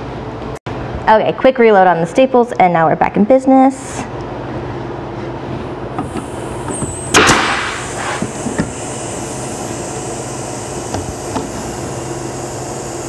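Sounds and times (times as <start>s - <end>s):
steady hum: 4.0s - 13.0s
staple gun firing with air hiss: 6.0s - 8.7s.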